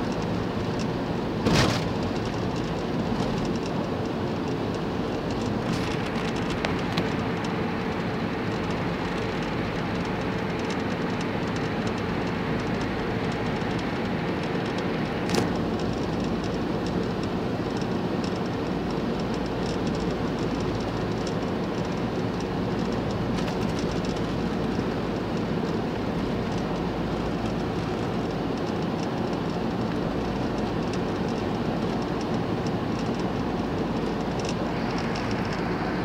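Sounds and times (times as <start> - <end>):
van road and engine rumble: 0.0 - 36.0.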